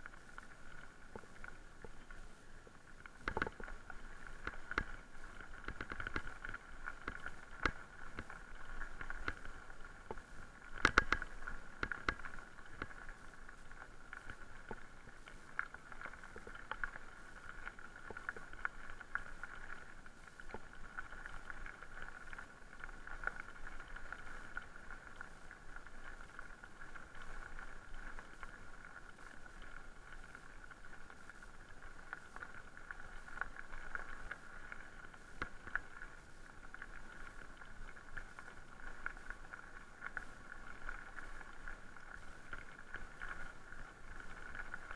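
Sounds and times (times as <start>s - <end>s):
bike clicks and rattles: 10.1s - 12.9s.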